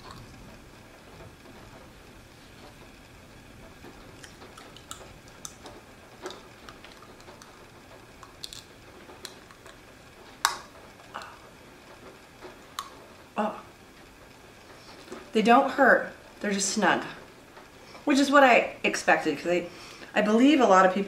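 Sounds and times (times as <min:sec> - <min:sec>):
plastic aligners clicking onto teeth: 0:04.2 - 0:07.6, 0:08.2 - 0:09.8.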